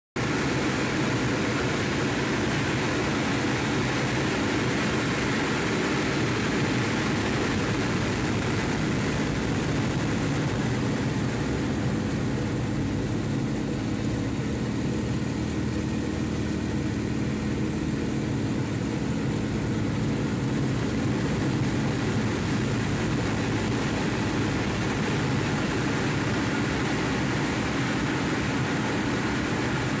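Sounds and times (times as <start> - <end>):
radial aircraft engine running: 0.2 - 30.0.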